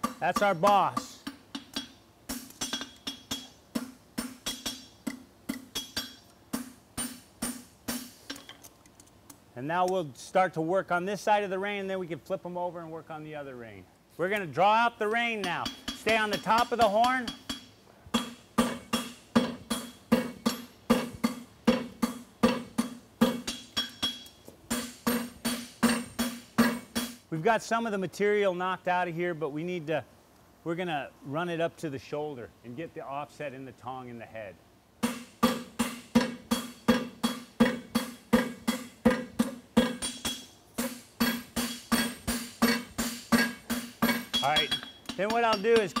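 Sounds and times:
hammer striking hot steel: 0.0 - 8.5, 15.4 - 27.2, 35.0 - 46.0
anvil ringing: 35.0 - 46.0.

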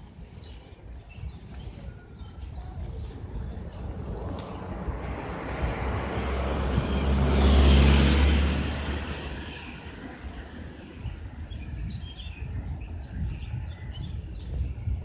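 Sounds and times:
small birds chirping: 0.0 - 4.6, 9.0 - 15.0
vehicle driving past: 3.9 - 10.7.

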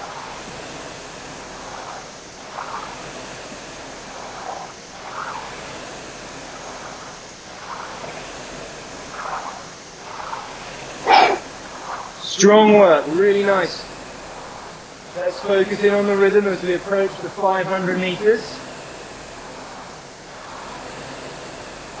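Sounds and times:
rowing machine flywheel whooshing: 0.0 - 22.0.

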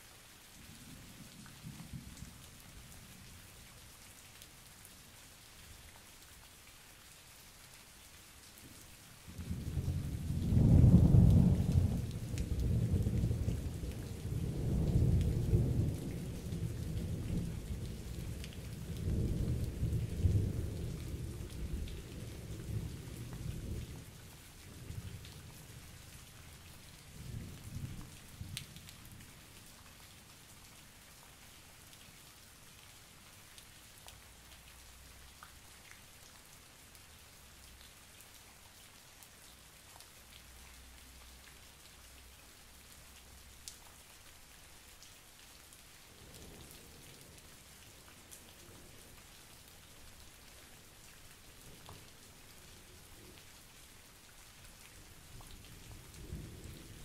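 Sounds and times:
steady rain: 0.0 - 57.0
thunder rumbling: 9.4 - 18.3.

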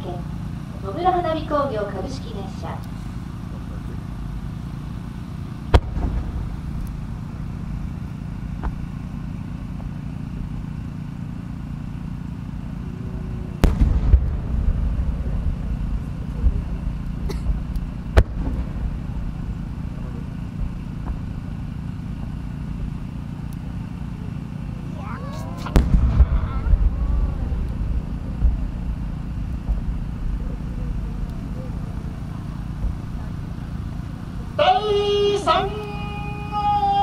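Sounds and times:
low rumble: 0.0 - 37.0
firework launch bang: 5.6 - 6.9, 13.6 - 21.8, 25.6 - 33.7
firework shell boom: 5.7 - 6.8, 13.6 - 21.6, 25.6 - 33.2.

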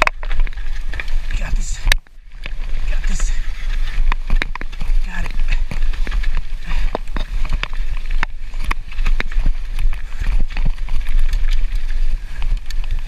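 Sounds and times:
steady rushing noise: 0.0 - 13.0
wind rumble on microphone: 0.0 - 13.0.

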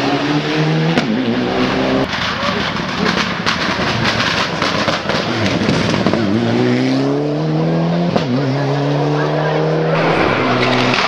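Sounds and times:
rally car engine accelerating: 0.0 - 3.2, 4.7 - 11.0
rally car engine popping and banging: 2.1 - 6.9.

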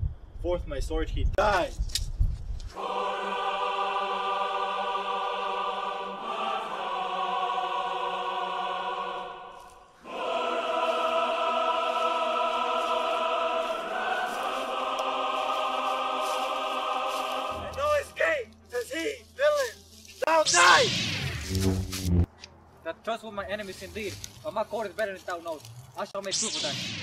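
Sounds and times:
choir singing held chords: 2.7 - 18.2.

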